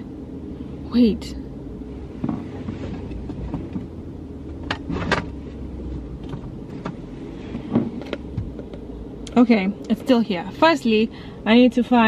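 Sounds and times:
steady low rumble: 0.0 - 12.0
rustling inside a car: 1.8 - 11.1.

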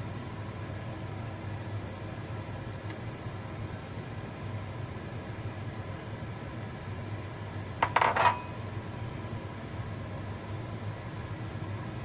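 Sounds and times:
ceramic bowl clinking: 7.8 - 8.6.

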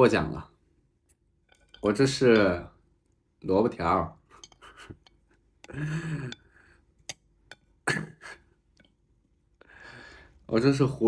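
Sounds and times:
chopsticks clinking on ceramic bowl: 1.1 - 2.7, 4.2 - 7.8, 8.7 - 9.0.

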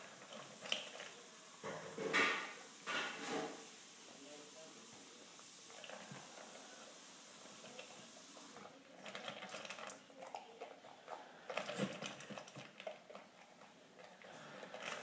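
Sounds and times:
dog crunching dry food: 0.2 - 1.2, 5.7 - 6.6, 7.5 - 15.0.

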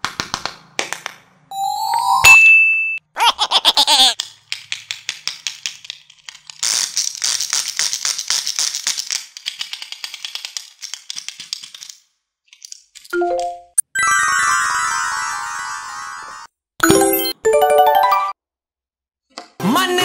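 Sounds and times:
rising three-note chime: 1.5 - 3.0.

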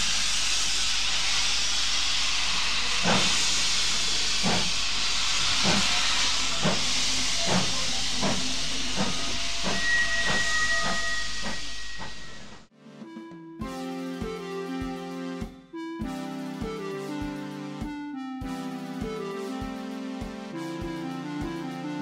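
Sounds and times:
locomotive chuffing: 0.0 - 12.6
steam locomotive hissing: 0.0 - 12.7
high whistle tone: 5.6 - 12.6.

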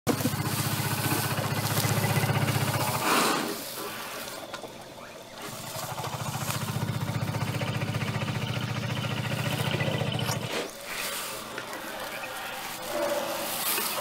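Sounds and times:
vehicle engine idling: 0.1 - 10.7.

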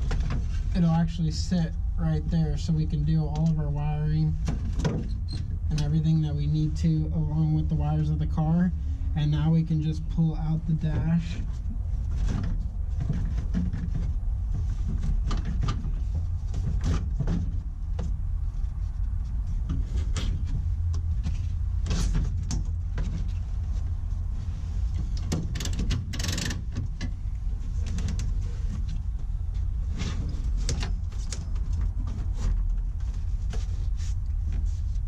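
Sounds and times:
steady low rumble: 0.0 - 35.0
plastic dashboard knocks and scrapes: 11.0 - 18.2.

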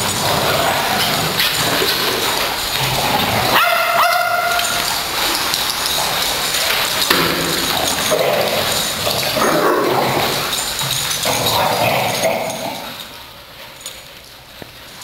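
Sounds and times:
dogs barking: 0.0 - 13.0.

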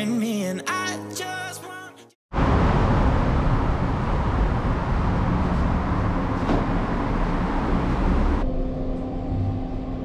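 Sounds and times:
traffic noise in a garage: 2.4 - 8.5
elevator low hum: 2.4 - 10.0.

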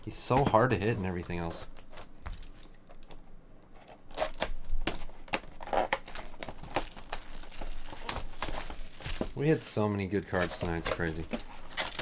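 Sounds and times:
plastic shrink wrap crinkling: 4.1 - 12.0.

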